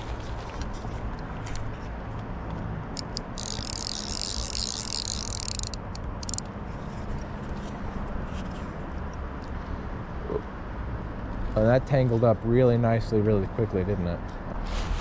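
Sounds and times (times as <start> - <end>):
fishing reel light clicks: 3.0 - 6.4.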